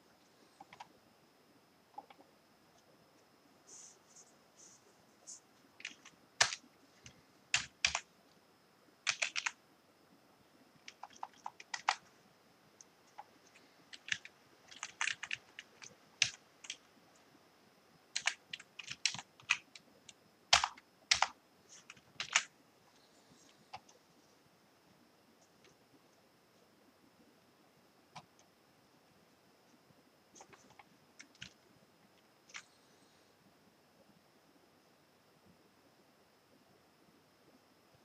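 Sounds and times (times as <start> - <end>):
typing on computer keyboard: 0.6 - 0.9, 5.8 - 8.1, 9.0 - 9.6, 10.8 - 12.1, 13.1 - 16.9, 18.1 - 19.8, 20.5 - 22.5, 30.4 - 31.6.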